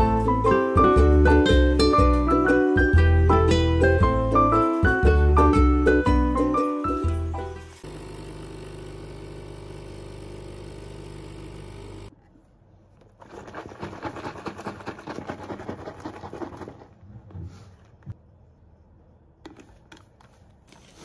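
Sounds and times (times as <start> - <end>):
coffee machine pump humming: 7.8 - 12.1
milk carton shaken: 13.1 - 17.1.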